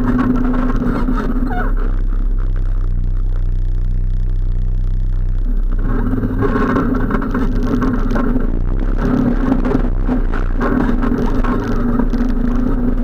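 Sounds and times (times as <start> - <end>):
atv engine revving: 0.0 - 13.0.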